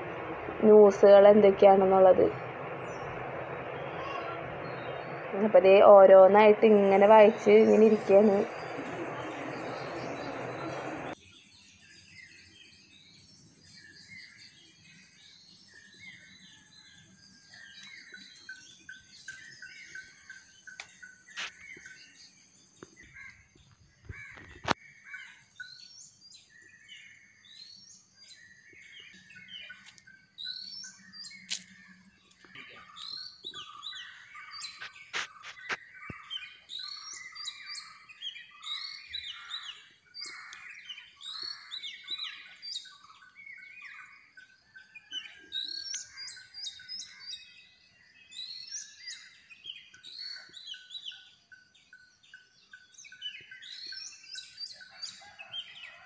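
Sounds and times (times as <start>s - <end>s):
thin high whine: 0.0s - 11.2s
small birds chirping: 0.0s - 56.0s.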